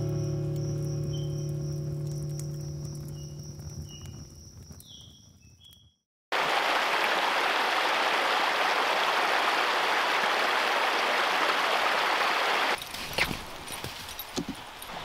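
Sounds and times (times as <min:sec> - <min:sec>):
faint high-pitched chirps: 0:00.0 - 0:01.9
water rushing in a creek: 0:06.3 - 0:15.0.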